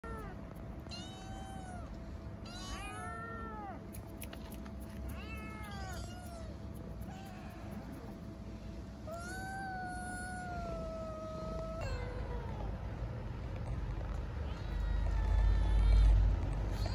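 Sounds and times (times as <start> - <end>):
kittens meowing: 0.0 - 3.9, 5.1 - 8.0, 9.1 - 12.9, 14.4 - 16.9.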